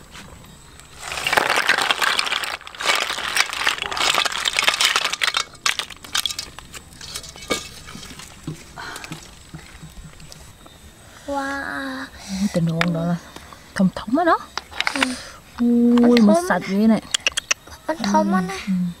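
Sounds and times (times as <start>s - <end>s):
snail shells clattering into basket: 1.0s - 9.9s.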